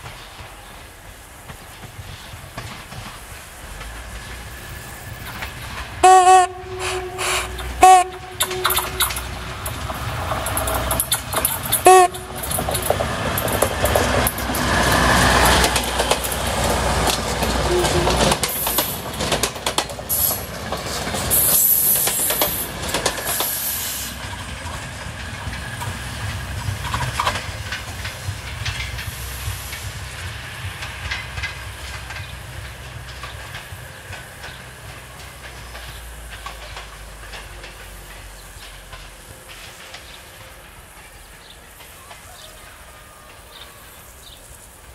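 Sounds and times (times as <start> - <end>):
railcar engine running: 0.0 - 44.9
wheels clicking over rail joints: 0.0 - 44.9
train horn blast: 6.0 - 9.8, 11.7 - 12.9, 17.6 - 18.4.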